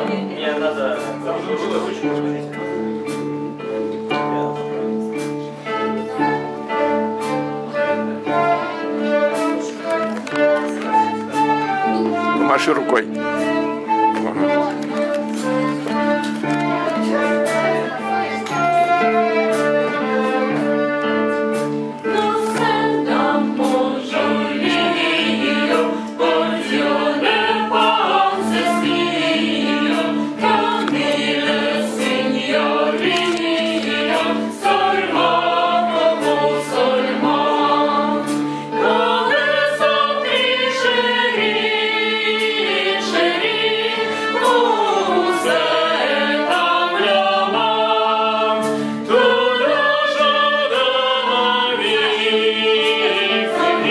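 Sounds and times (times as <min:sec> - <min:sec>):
fiddle: 0:00.0 - 0:53.9
accordion: 0:05.1 - 0:53.9
group singing: 0:05.9 - 0:53.9
flute: 0:06.0 - 0:22.3, 0:44.0 - 0:46.8.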